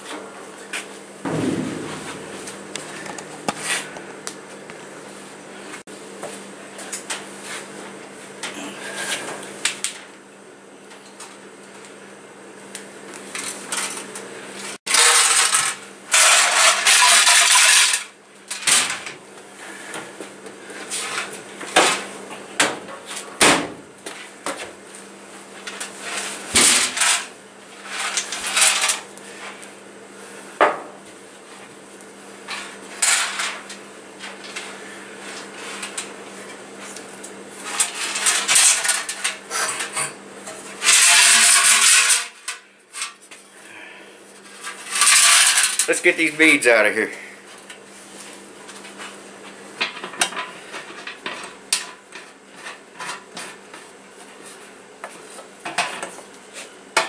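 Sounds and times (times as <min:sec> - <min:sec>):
steady low hum: 0:01.2 - 0:07.1
stones rattling in metal tank: 0:01.3 - 0:03.5, 0:14.9 - 0:18.1.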